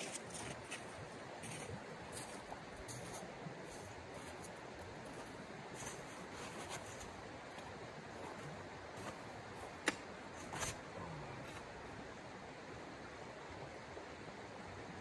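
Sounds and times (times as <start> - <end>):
footsteps on icy snow: 0.0 - 10.8.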